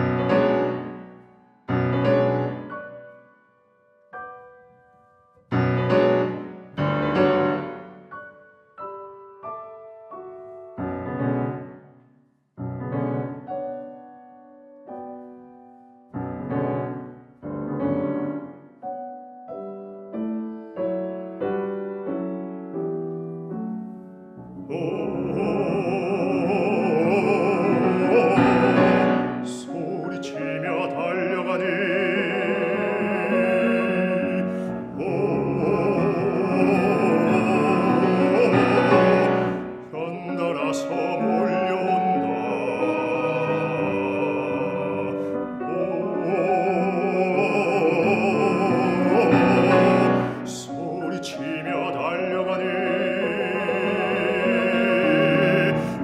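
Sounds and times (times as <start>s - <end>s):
grand piano chords: 0.0s - 56.0s
man singing with vibrato: 24.6s - 56.0s.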